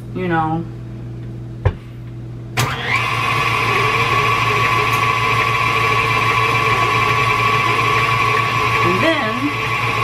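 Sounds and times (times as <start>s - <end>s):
electric mixer whining: 2.6s - 10.0s.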